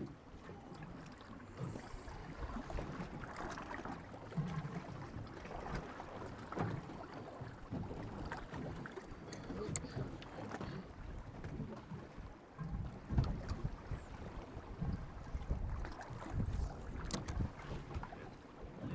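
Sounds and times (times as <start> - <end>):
water slapping against boat hull: 0.0 - 18.9
wind on microphone: 12.6 - 18.9.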